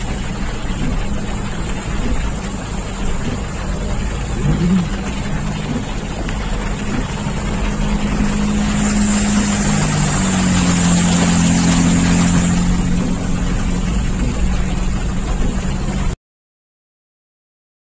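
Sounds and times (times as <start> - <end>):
car engine hum from cabin: 0.0 - 16.2
heavy rain: 0.0 - 16.2
passing car splashing floodwater: 0.0 - 16.2
tyre spray and splashing water: 0.0 - 16.2.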